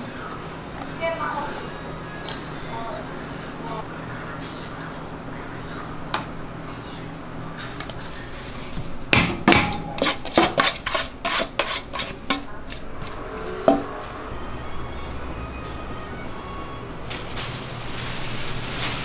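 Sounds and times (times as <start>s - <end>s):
metal bowls and spoon clanking: 9.1s - 13.9s.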